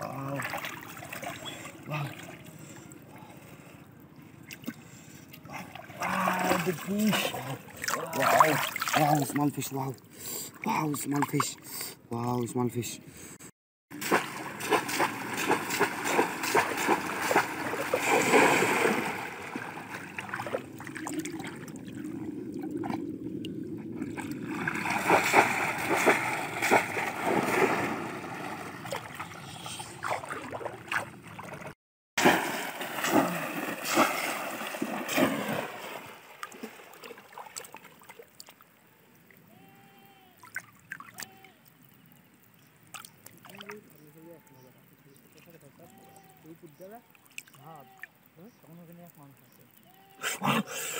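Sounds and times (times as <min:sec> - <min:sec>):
people wading through floodwater: 0:00.0 - 0:10.7, 0:14.0 - 0:22.5, 0:24.2 - 0:38.2.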